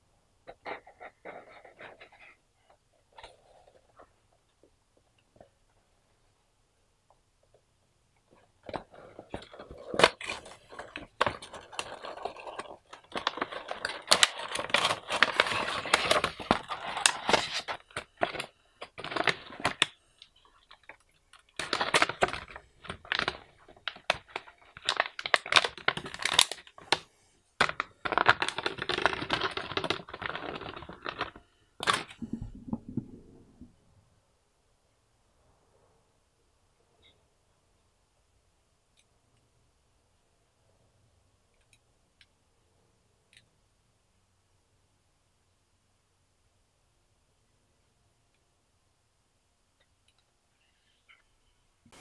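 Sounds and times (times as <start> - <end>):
plastic packaging crinkling: 8.3 - 27.0, 27.6 - 33.3.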